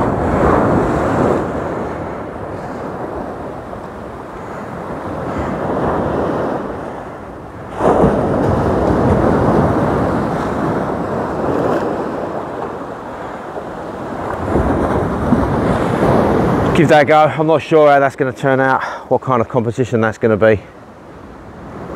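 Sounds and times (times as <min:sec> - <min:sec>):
wind rumbling on microphone: 0:00.0 - 0:17.2
sea waves washing up beach: 0:00.0 - 0:21.9.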